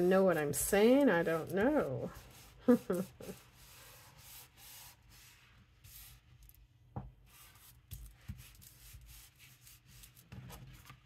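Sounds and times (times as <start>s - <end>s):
paper rustling: 7.4s - 11.0s.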